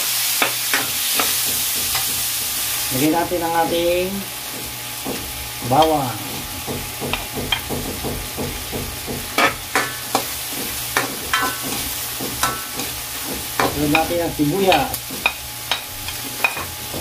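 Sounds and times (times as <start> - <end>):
pork sizzling in a wok: 0.0 - 17.0
ladle clanking on a wok: 4.5 - 17.0.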